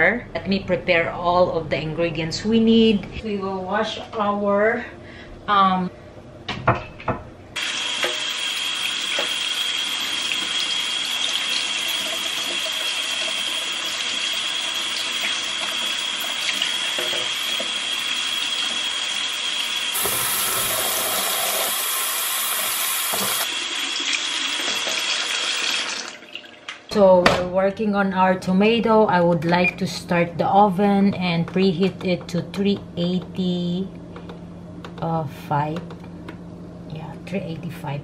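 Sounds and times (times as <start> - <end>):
tap water running into sink: 7.6 - 26.8.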